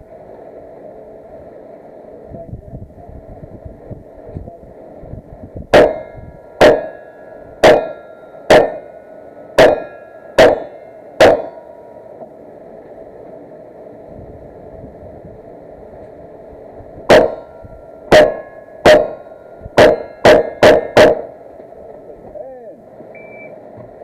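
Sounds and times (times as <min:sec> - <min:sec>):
gunshots: 0:05.7 - 0:07.0, 0:07.6 - 0:08.9, 0:09.6 - 0:11.6, 0:17.1 - 0:17.4, 0:18.1 - 0:21.3
metallic ring of steel targets: 0:05.8 - 0:12.0, 0:17.1 - 0:21.4.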